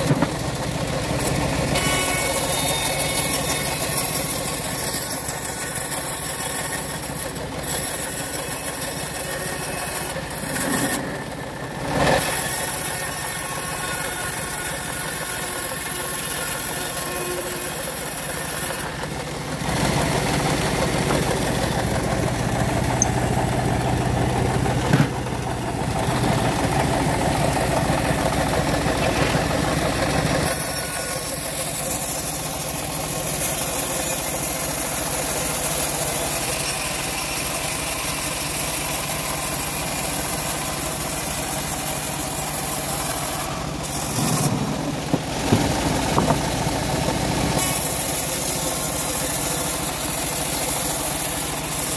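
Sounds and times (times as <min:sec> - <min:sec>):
engine-driven bandsaw cutting wood: 0:00.0 - 0:51.9
bandsaw jolt: 0:41.8 - 0:51.9.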